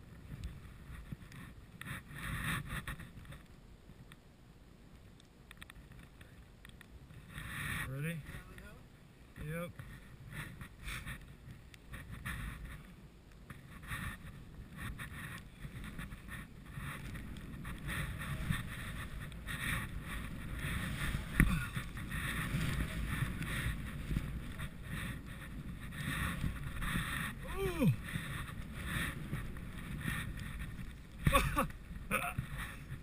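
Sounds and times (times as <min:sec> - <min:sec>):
wind buffeting microphone: 0:13.6 - 0:33.0
skis swooshing through powder snow: 0:13.7 - 0:33.0.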